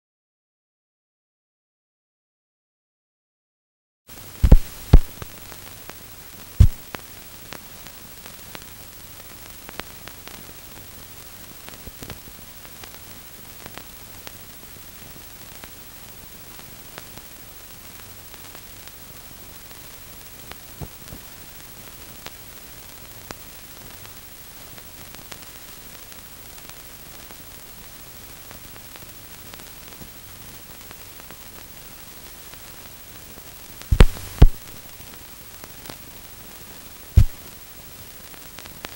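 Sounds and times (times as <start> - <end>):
faint crackles: 4.1 - 38.9
film soundtrack hiss and hum: 4.1 - 38.9
sharp pop: 4.4 - 5.4, 6.6 - 7.0, 33.9 - 34.9, 37.2 - 37.5.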